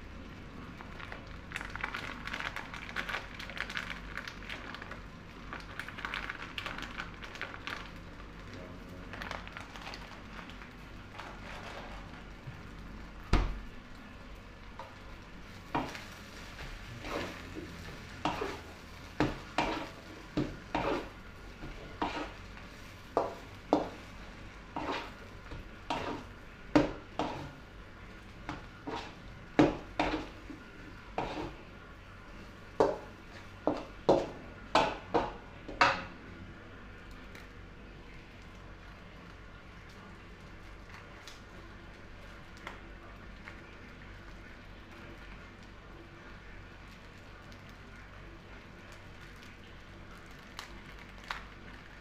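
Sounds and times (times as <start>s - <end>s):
frying sizzle: 0.0s - 52.0s
metal spatula scraping wok: 19.6s - 20.0s, 20.7s - 21.2s, 22.0s - 22.4s, 24.7s - 25.2s, 25.9s - 26.3s, 31.2s - 31.6s.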